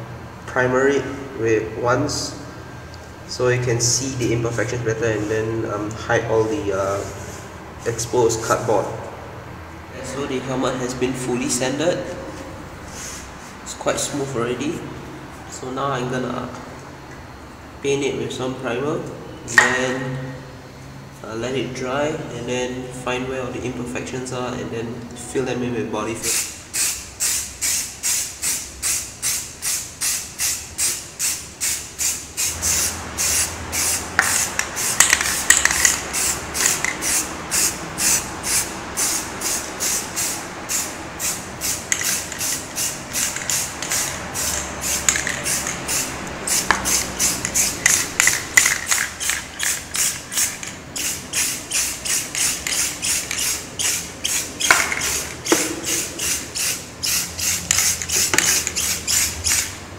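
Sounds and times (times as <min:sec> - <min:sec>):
spray can ball rattling: 0:26.2 - 0:59.8
spray hissing: 0:26.2 - 0:59.8.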